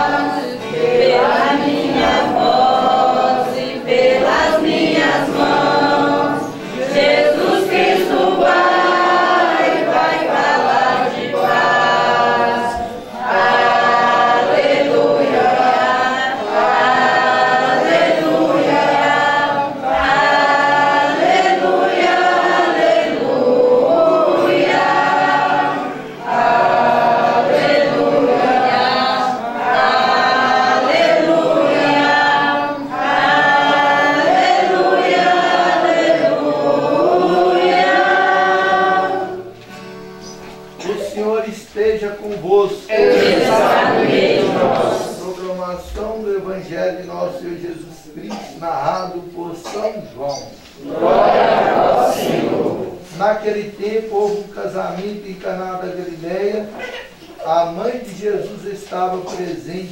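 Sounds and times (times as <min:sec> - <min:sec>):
congregation singing a hymn: 0:00.0 - 0:59.9.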